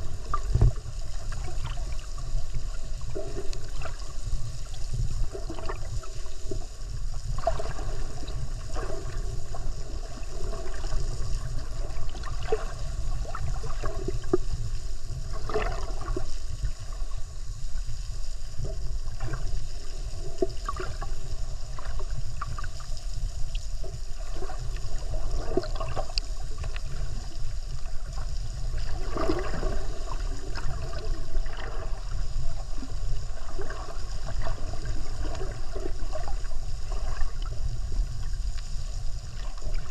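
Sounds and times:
underwater rumble of moving water: 0:00.0 - 0:39.9
water gurgles and crackles: 0:00.0 - 0:39.9.

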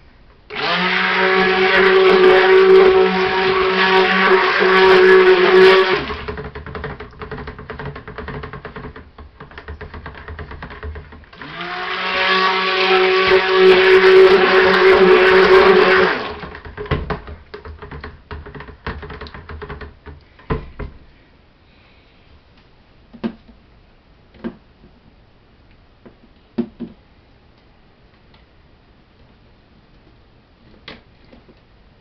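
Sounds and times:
stick blender running: 0:00.5 - 0:09.0, 0:09.9 - 0:17.3.

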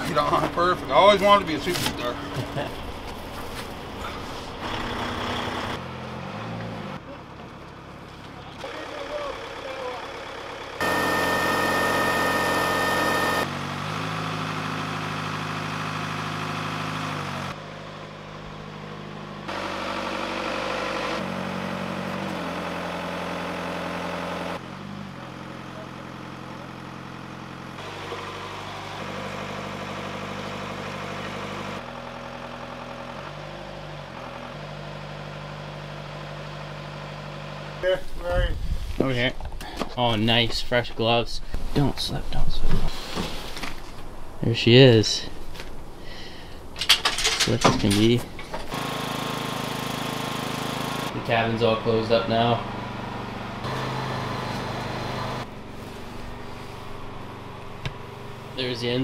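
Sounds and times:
lift engine running: 0:00.0 - 0:05.8, 0:07.2 - 0:37.8, 0:46.8 - 0:59.0
high steady whine: 0:10.8 - 0:13.5.

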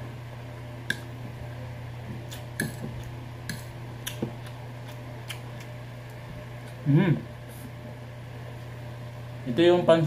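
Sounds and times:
electric fan humming: 0:00.0 - 0:10.0
wet chewing: 0:02.2 - 0:06.8.

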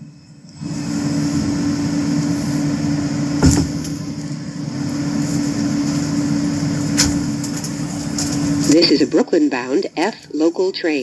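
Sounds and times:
subway car hum and rumble: 0:00.0 - 0:11.0
sharp clunk: 0:03.4 - 0:04.0.

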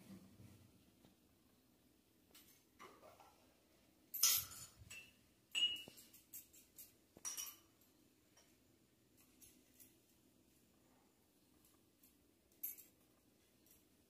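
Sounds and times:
metal spoon clinking on glass jar: 0:04.2 - 0:07.7.

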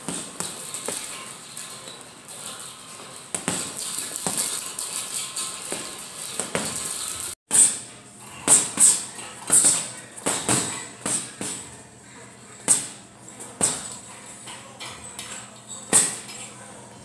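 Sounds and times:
punches thudding on heavy bag: 0:00.0 - 0:01.1, 0:03.1 - 0:04.5.

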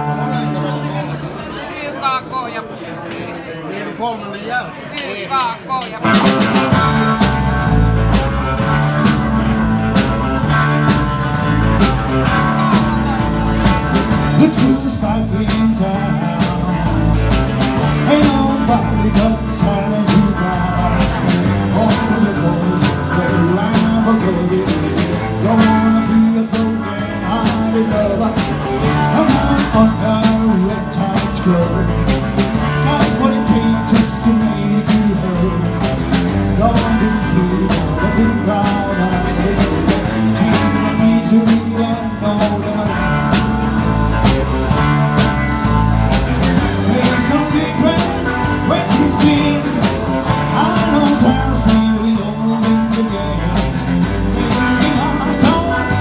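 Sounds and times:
electric guitars: 0:00.0 - 0:01.5, 0:05.9 - 0:56.0
drum kit beat: 0:05.4 - 0:56.0
man singing: 0:06.1 - 0:56.0.

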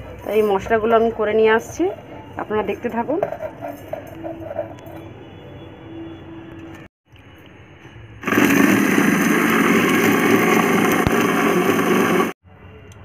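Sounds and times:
mixer grinder grinding spices: 0:08.2 - 0:12.4.

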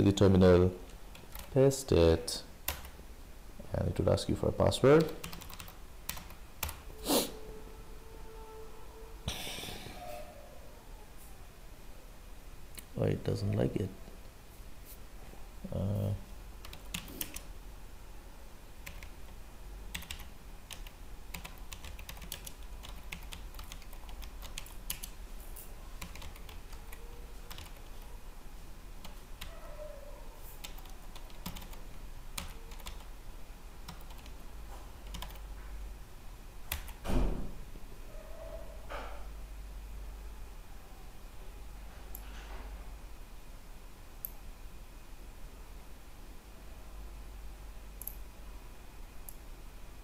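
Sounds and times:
keyboard typing: 0:01.1 - 0:01.6, 0:02.7 - 0:03.0, 0:05.0 - 0:06.9, 0:16.6 - 0:17.5, 0:18.8 - 0:25.2, 0:26.0 - 0:28.1, 0:30.6 - 0:33.1, 0:33.9 - 0:34.4, 0:35.0 - 0:35.5, 0:36.7 - 0:37.0.

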